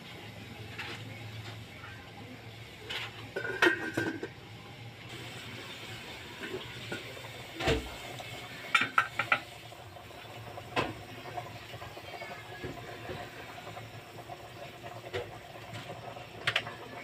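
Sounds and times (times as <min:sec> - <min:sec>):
boiling broth hissing: 0:00.0 - 0:17.0
metal pot lid clattering: 0:02.9 - 0:04.3.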